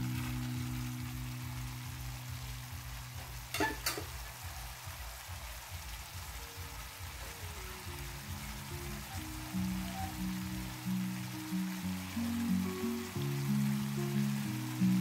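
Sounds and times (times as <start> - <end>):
background music with low beat: 0.0 - 10.8
sauce simmering in metal pan: 0.0 - 15.0.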